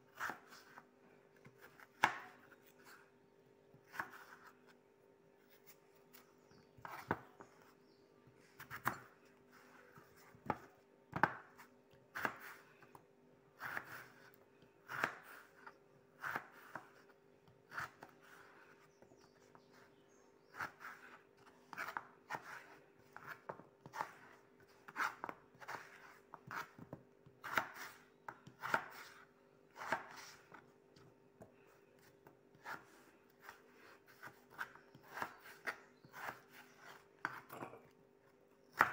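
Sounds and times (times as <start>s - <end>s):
knife scraping through potato: 13.6s - 30.6s, 32.0s - 37.9s.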